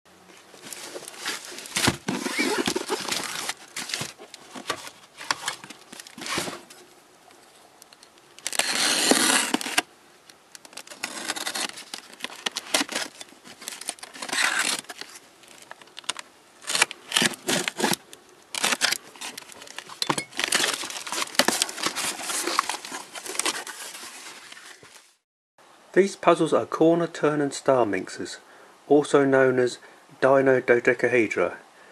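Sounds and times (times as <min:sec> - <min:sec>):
packing paper crinkling: 0:00.4 - 0:06.9, 0:08.3 - 0:09.9, 0:10.5 - 0:25.2
cardboard flaps handled: 0:00.6 - 0:06.8
packing tape slit with knife: 0:00.8 - 0:06.7, 0:08.4 - 0:09.9, 0:10.6 - 0:24.6.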